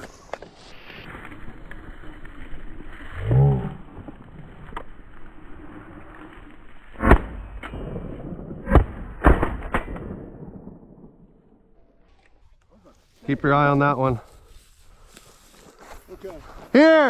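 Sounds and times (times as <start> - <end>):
shotgun shots: 7.0 - 11.2.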